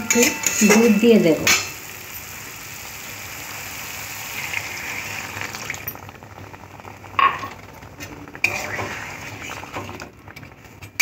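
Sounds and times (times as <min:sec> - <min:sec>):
spatula clinking on a pan: 0:00.0 - 0:01.8.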